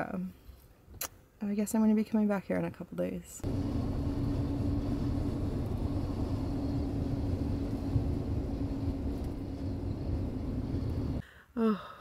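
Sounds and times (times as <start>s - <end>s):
engine running with droning hum: 3.4s - 11.2s.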